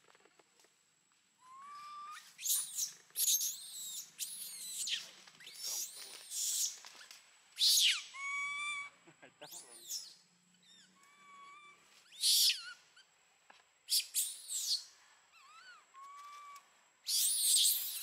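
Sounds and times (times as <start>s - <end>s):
monkey screaming: 7.6s - 9.0s, 9.8s - 12.8s, 13.9s - 18.0s.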